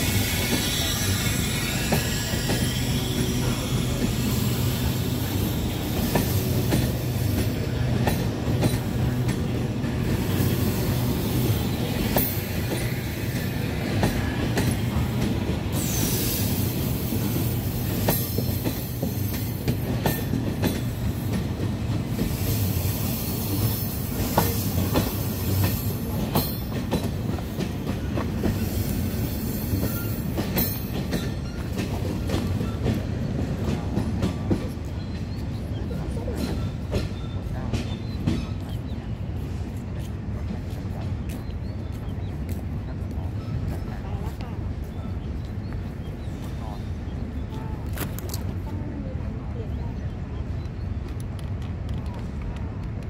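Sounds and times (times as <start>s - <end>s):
high wheel squeal: 0.0s - 7.2s, 28.5s - 31.8s
train coaches rumbling: 0.0s - 53.0s.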